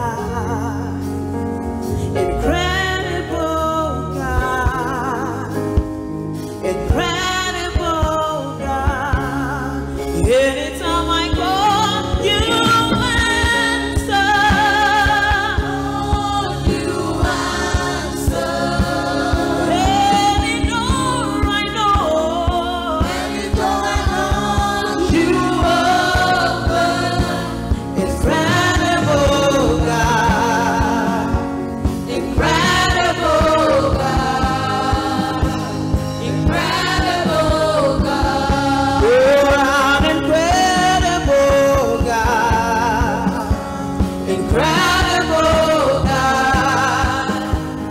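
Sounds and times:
group singing gospel song: 1.9 - 6.0, 6.6 - 47.9
steady drum beat: 11.3 - 47.9.

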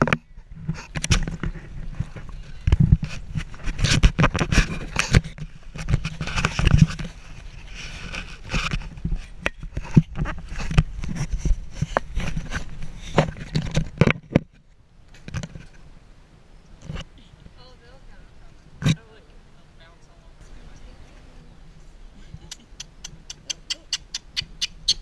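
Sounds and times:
monkey scraping on camera housing: 0.0 - 14.6.

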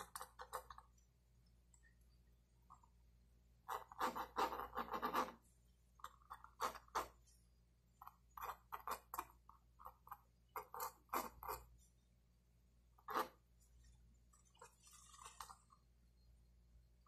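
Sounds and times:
pencil scratching on paper: 3.7 - 7.4, 8.0 - 11.9.

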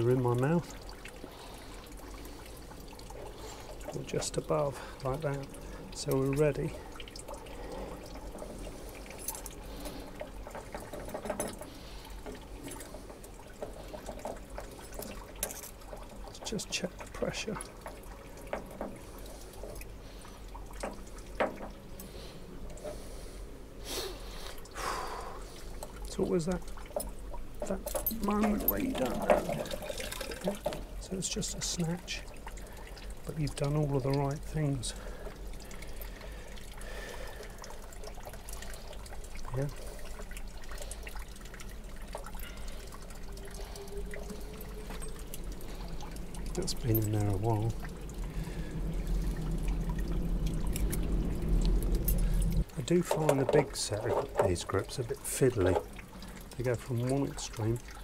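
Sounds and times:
water trickling into container: 0.0 - 58.0
water drops plinking: 40.4 - 51.1.

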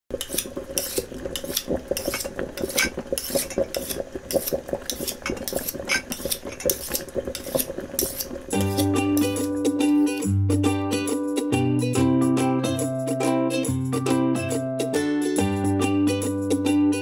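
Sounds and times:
cutlery and pans clinking: 0.2 - 3.5, 4.9 - 9.5.

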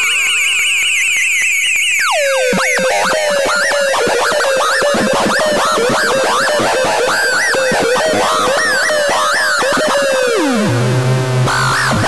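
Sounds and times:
warbling siren swoops with echo: 0.0 - 4.1.

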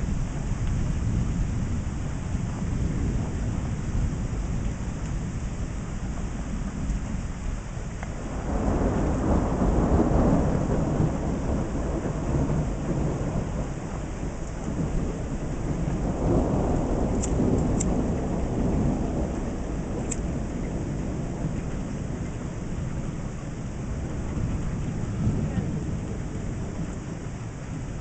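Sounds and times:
rolling thunder: 0.0 - 28.0
steady rain: 0.0 - 28.0
light ticks: 8.0 - 8.2, 17.1 - 18.0, 20.0 - 20.8.

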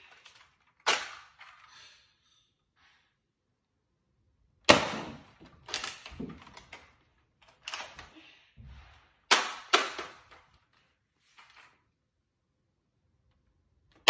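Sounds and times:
plastic clacks and knocks: 5.4 - 7.8.

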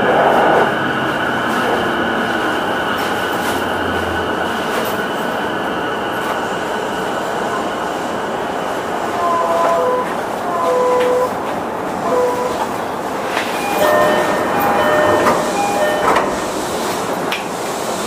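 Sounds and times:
train running rumble: 0.0 - 18.0
chime-like tones: 13.6 - 16.5
inverter pitched tones: 13.6 - 16.6.

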